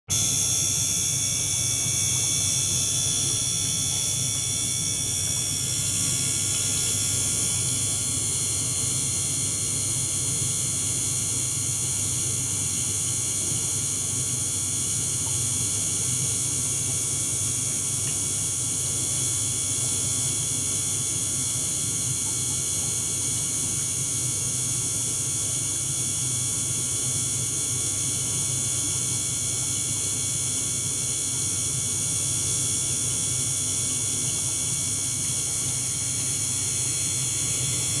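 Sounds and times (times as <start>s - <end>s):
pump hiss: 0.1s - 11.0s, 26.8s - 38.0s.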